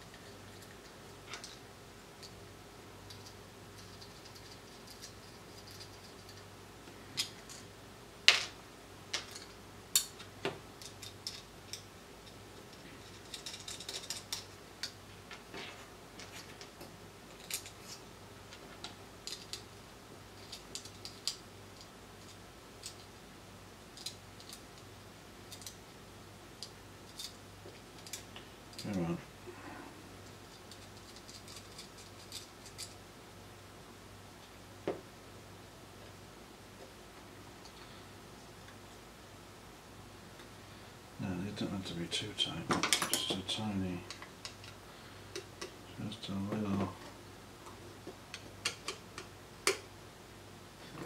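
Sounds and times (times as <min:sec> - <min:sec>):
faint steady hum: 0:00.0 - 0:51.0
metal screws clicking and tapping: 0:09.2 - 0:12.4, 0:13.0 - 0:15.0, 0:48.3 - 0:49.8.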